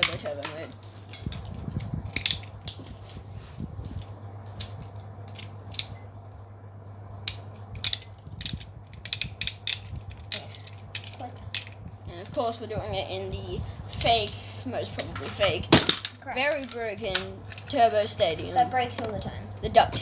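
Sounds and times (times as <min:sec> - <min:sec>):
low steady hum: 0:00.0 - 0:20.0
plastic spinning tops clicking: 0:07.8 - 0:12.4.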